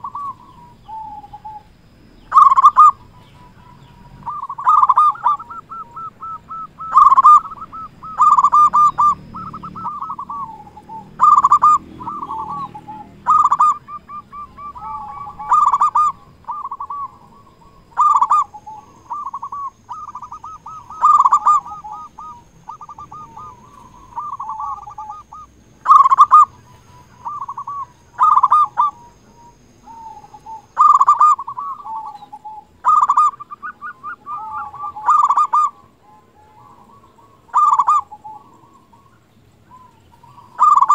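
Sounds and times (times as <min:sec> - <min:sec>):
dove cooing: 0:00.0 - 0:40.9.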